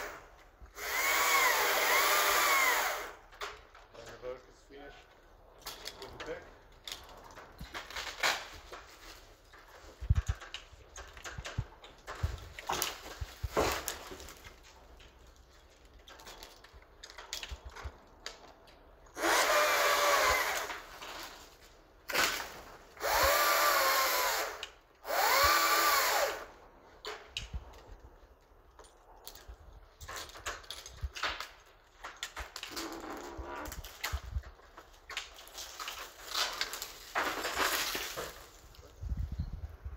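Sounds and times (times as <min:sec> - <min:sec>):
chainsaw cutting branches: 0:00.0 - 0:03.2, 0:19.1 - 0:21.4, 0:22.1 - 0:26.6.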